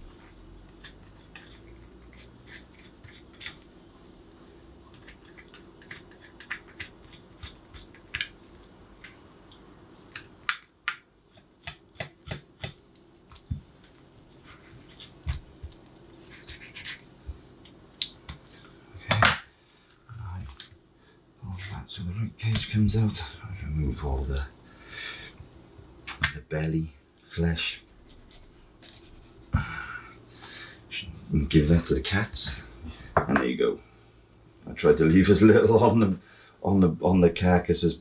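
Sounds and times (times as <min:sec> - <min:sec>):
knife clicking and scraping bones: 0:00.7 - 0:03.8, 0:04.9 - 0:08.4.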